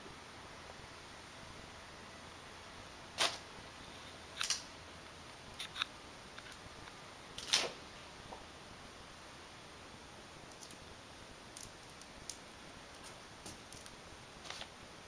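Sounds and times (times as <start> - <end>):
stencil sheet and tape crinkling: 13.0 - 14.7.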